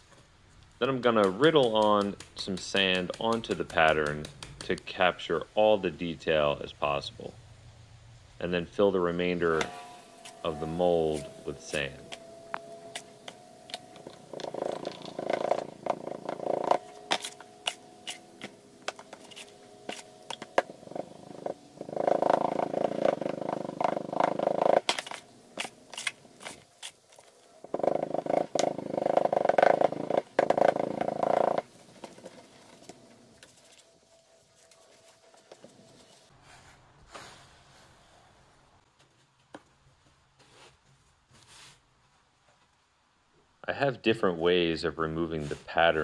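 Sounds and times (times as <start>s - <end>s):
droning hum: 0.7s - 36.3s
hand rammer tapping sand: 0.8s - 5.0s.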